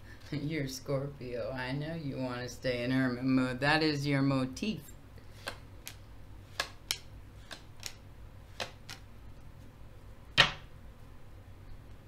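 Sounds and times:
low steady hum: 0:00.0 - 0:12.0
cards clicking and snapping: 0:05.3 - 0:09.1.

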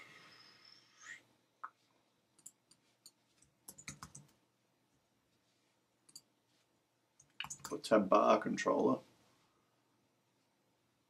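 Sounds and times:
computer mouse clicks: 0:02.4 - 0:04.4, 0:06.0 - 0:06.3, 0:07.2 - 0:07.8
computer keyboard clicks: 0:03.7 - 0:04.3, 0:07.2 - 0:07.8.

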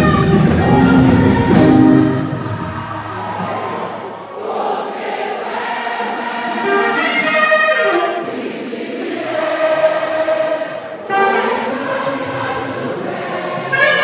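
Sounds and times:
saxophone melody: 0:00.0 - 0:02.3, 0:06.6 - 0:08.3, 0:11.0 - 0:12.2, 0:13.6 - 0:14.0
backing vocalists singing: 0:00.0 - 0:14.0.

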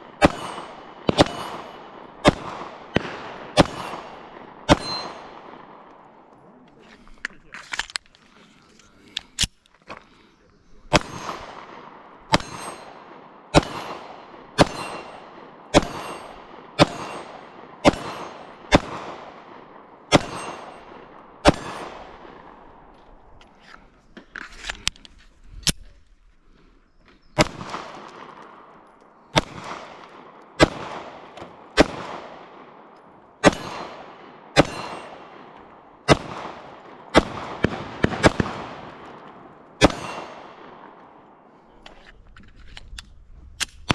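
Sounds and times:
pistol shots with echo: 0:00.0 - 0:06.3, 0:10.8 - 0:22.9, 0:27.3 - 0:41.4
small metallic handling clicks: 0:07.1 - 0:09.8.

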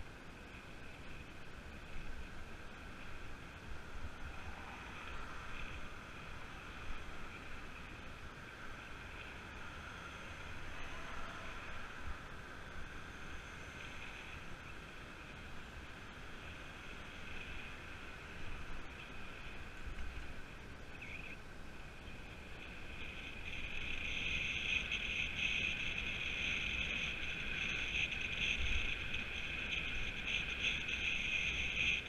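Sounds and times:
bicycle tyres humming on tarmac: 0:00.0 - 0:32.0.

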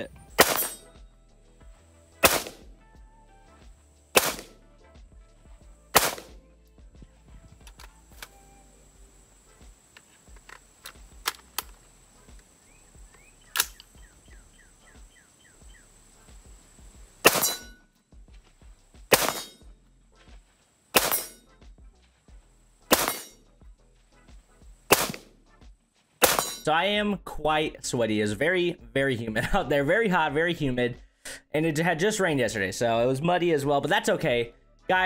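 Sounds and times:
rifle shots: 0:00.4 - 0:00.9, 0:02.2 - 0:02.7, 0:04.1 - 0:04.6, 0:05.9 - 0:06.4, 0:13.5 - 0:13.8, 0:17.2 - 0:17.8, 0:19.1 - 0:19.6, 0:20.9 - 0:21.4, 0:22.9 - 0:23.4, 0:24.9 - 0:25.3, 0:26.2 - 0:26.6.

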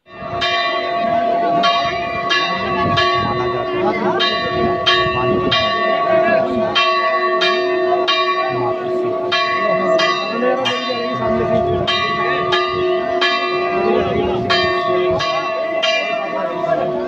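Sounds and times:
temple bell ringing: 0:00.0 - 0:17.0
crowd chatter: 0:00.1 - 0:17.0.

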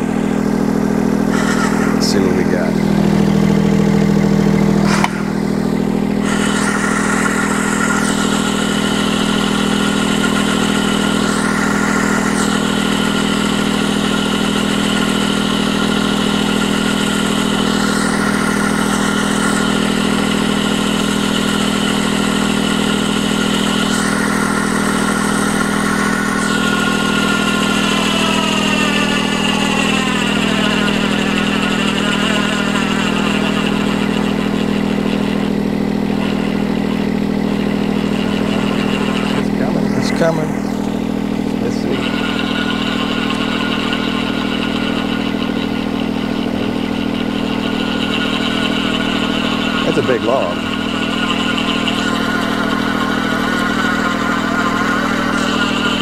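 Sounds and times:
electric winch whining: 0:00.0 - 0:56.0
excavator engine running: 0:00.0 - 0:56.0.

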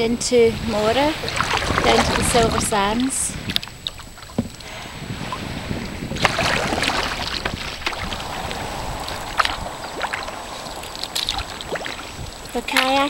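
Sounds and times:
wind rumble on microphone: 0:00.0 - 0:13.0
water swishing: 0:00.5 - 0:13.0
paddle splashes: 0:00.8 - 0:13.0.

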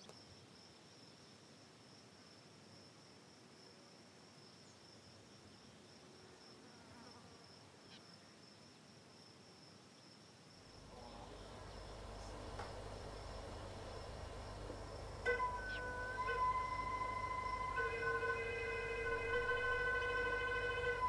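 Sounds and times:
night insects trilling: 0:04.4 - 0:21.0
low rumble: 0:10.8 - 0:21.0.

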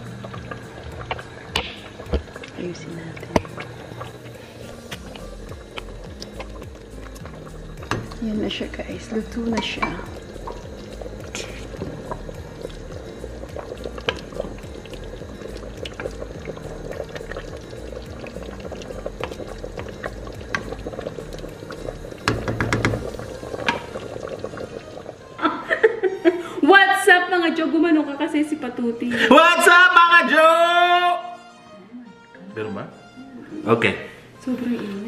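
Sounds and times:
stew bubbling in a pot: 0:00.0 - 0:25.9.

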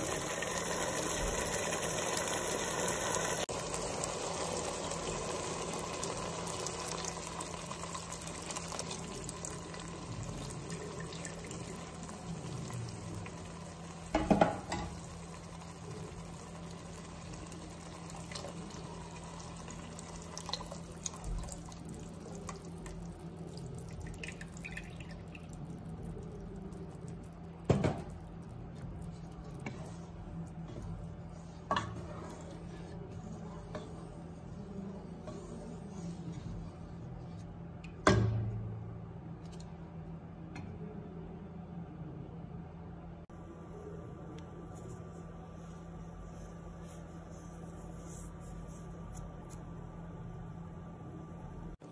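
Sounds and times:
liquid pouring and splashing: 0:15.7 - 0:33.0.

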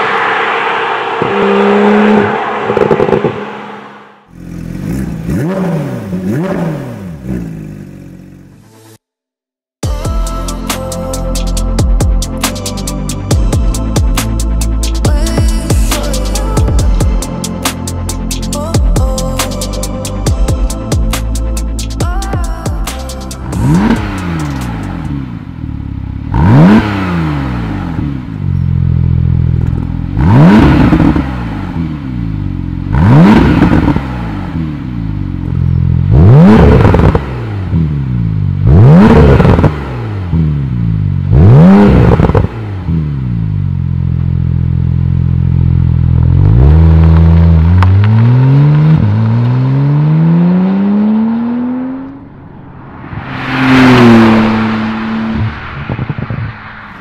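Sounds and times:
car accelerating hard: 0:00.0 - 0:07.3, 0:46.2 - 0:57.0
sports car engine revving: 0:23.5 - 0:57.0.

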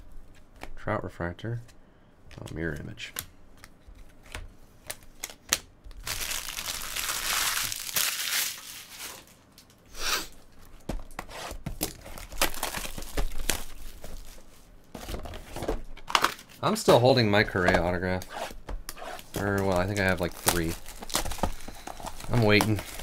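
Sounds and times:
plastic shrink wrap crinkling: 0:04.9 - 0:09.8, 0:11.8 - 0:14.6, 0:19.2 - 0:23.0.

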